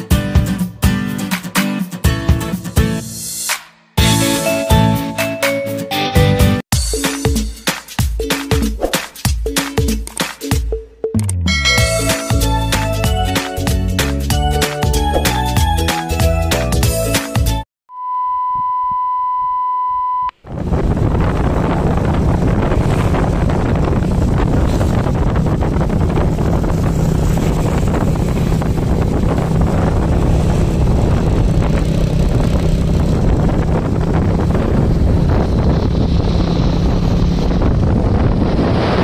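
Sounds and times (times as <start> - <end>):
motorcycle engine hum: 20.4 - 38.9
wind buffeting microphone: 20.4 - 39.0.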